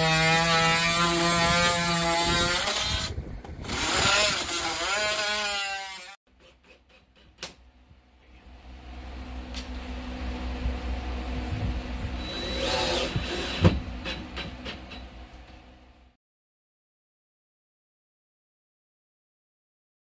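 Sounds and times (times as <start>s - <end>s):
oscillating multi-tool whining: 12.2s - 13.6s.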